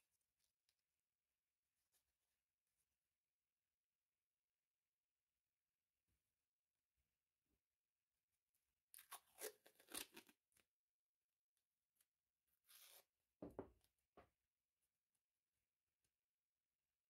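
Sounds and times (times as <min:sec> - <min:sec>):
soft knock: 0:13.4 - 0:14.3.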